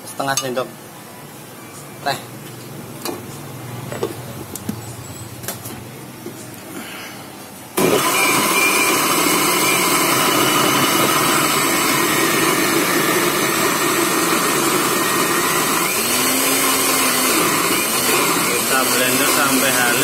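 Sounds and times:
electric blender grinding: 7.8s - 20.0s.

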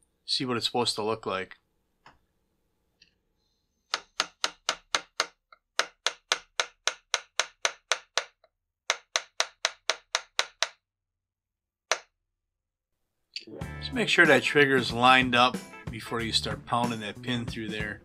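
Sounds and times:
hammer tapping a punch: 3.9s - 10.8s, 11.9s - 12.1s.

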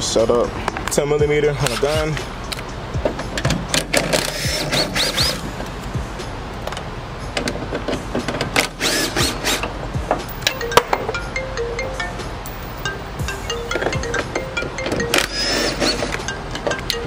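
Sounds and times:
background music: 0.0s - 17.0s
cordless impact gun bursts: 4.2s - 5.4s, 8.6s - 9.6s.

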